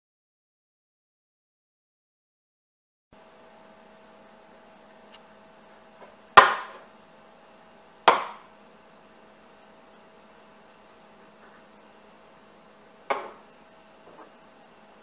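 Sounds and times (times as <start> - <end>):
faint steady hum: 3.2 - 15.0.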